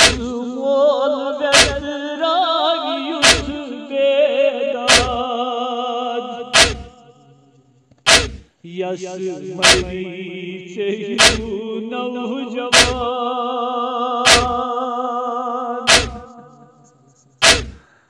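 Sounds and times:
chest-beating slaps: 0.0 - 0.3, 1.5 - 1.8, 3.2 - 3.6, 4.9 - 5.2, 6.6 - 6.9, 8.1 - 8.5, 9.6 - 10.0, 11.2 - 11.5, 12.7 - 13.1, 14.3 - 14.6, 15.9 - 16.4, 17.4 - 17.8
man singing a lament: 0.0 - 7.2, 8.6 - 16.8.

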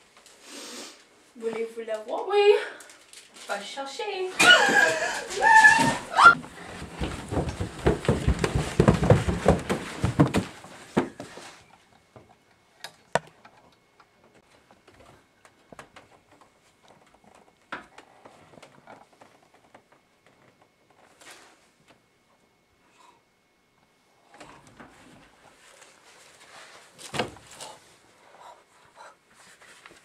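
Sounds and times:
body thumping down carpeted stairs: 4.5 - 11.4.

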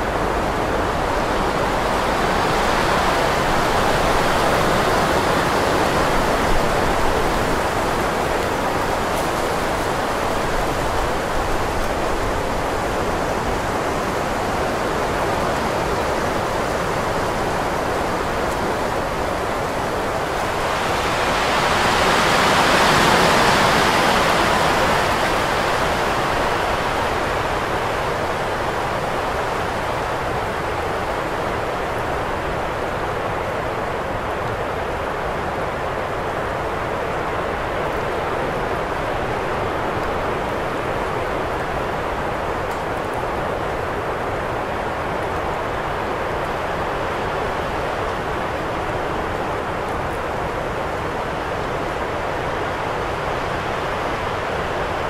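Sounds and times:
wind blowing in gusts: 0.0 - 55.0.

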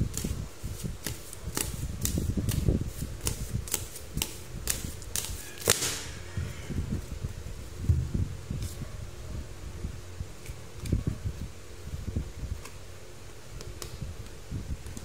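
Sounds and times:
cards being shuffled: 0.1 - 6.1.

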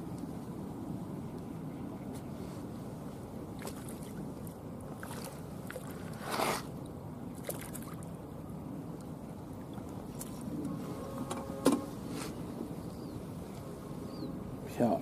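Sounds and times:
small waves lapping: 2.4 - 11.2
fish splashing at the surface: 7.4 - 8.1.

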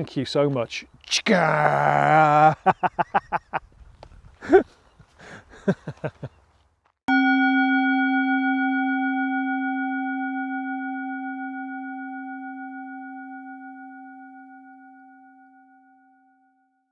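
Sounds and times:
struck metal bell tone: 7.1 - 16.9.

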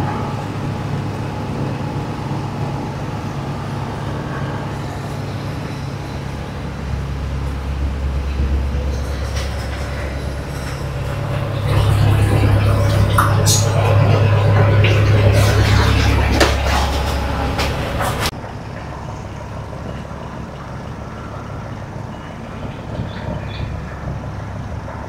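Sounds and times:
engine rumbling: 0.0 - 25.0.

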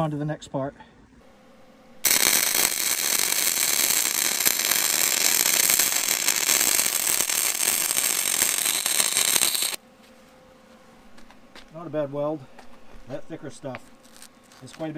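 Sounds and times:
welding arc crackling: 2.0 - 9.8, 14.0 - 14.9.

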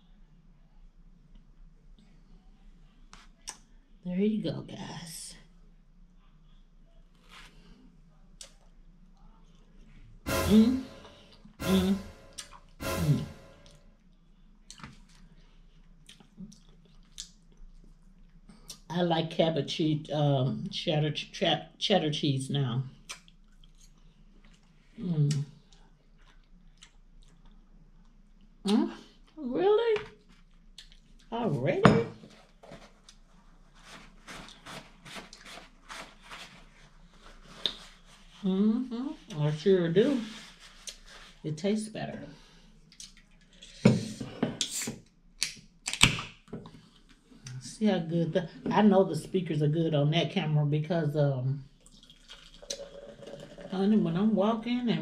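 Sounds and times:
person chewing food: 14.7 - 18.8, 23.1 - 24.8, 25.7 - 28.6, 30.2 - 31.3
paper napkin rustling: 32.2 - 38.4.

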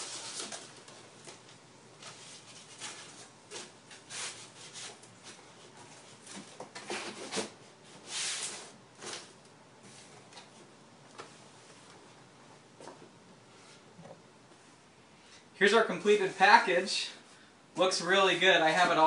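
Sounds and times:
hands rustling cardboard packing: 0.0 - 9.4.

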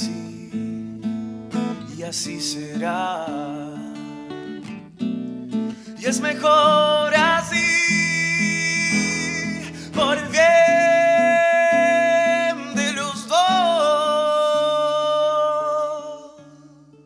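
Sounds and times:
acoustic guitar chords: 0.0 - 17.0
man singing long high notes: 6.0 - 16.7.

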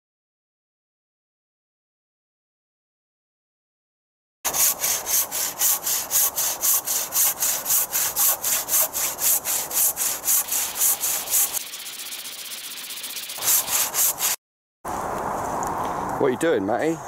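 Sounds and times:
hand saw cutting a log: 4.5 - 14.4.

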